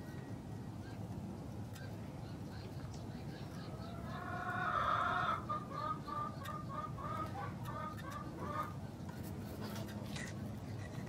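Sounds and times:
chicken clucking: 0:03.6 - 0:08.9.

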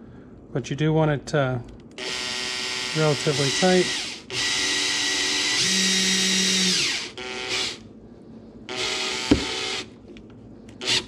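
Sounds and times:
cordless drill driving screws: 0:02.0 - 0:07.8, 0:08.7 - 0:09.9, 0:10.8 - 0:11.0
sharp knock: 0:09.3 - 0:09.5.

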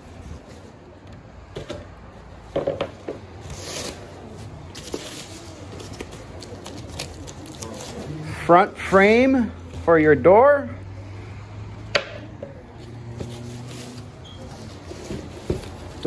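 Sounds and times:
packaging and cardboard rustling: 0:03.4 - 0:08.2, 0:13.1 - 0:16.0.

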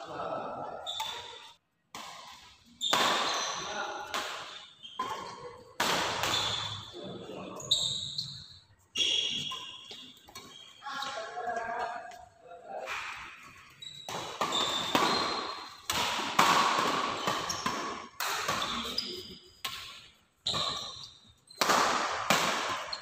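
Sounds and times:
shoe squeaks on wooden court: 0:00.8 - 0:01.6, 0:02.7 - 0:03.8, 0:04.5 - 0:05.4, 0:06.2 - 0:12.1, 0:13.4 - 0:15.9, 0:17.1 - 0:17.9, 0:18.5 - 0:19.6, 0:20.4 - 0:21.6, 0:22.7 - 0:23.0
rackets hitting shuttlecock: 0:00.9 - 0:07.3, 0:09.0 - 0:12.2, 0:12.8 - 0:23.0.

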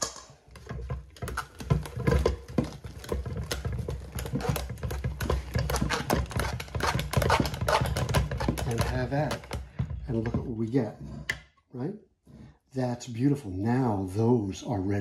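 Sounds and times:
food mill blade clicking and scraping: 0:00.0 - 0:10.0.

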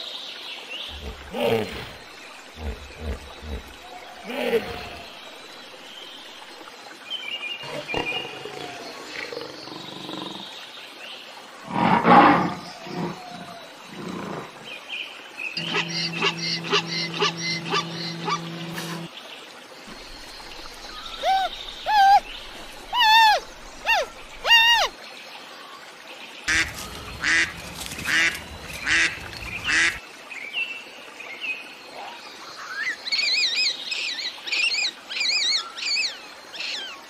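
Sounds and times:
pulsing animal call: 0:00.9 - 0:05.1, 0:15.6 - 0:19.1, 0:20.8 - 0:24.9, 0:26.5 - 0:30.0
roar-like animal call: 0:00.9 - 0:05.2, 0:11.6 - 0:14.7, 0:15.6 - 0:19.1
rising-and-falling animal calls: 0:15.6 - 0:19.1, 0:20.8 - 0:25.0
steady droning tone: 0:15.6 - 0:19.1.

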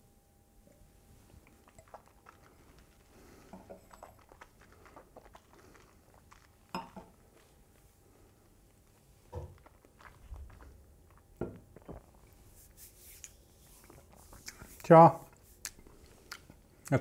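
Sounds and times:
mouth and lip sounds: 0:01.4 - 0:06.8, 0:08.8 - 0:17.0.

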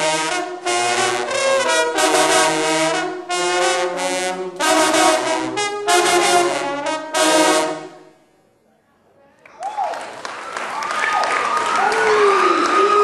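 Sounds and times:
baritone horns playing fanfare: 0:00.0 - 0:08.2.

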